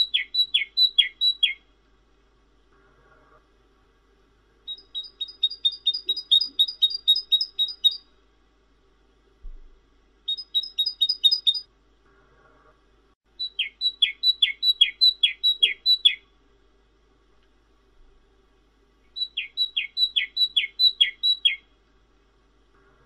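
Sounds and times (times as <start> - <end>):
bird singing whistled notes: 0.0 - 1.6, 4.7 - 8.1, 10.3 - 11.7, 13.4 - 16.2, 19.1 - 21.7.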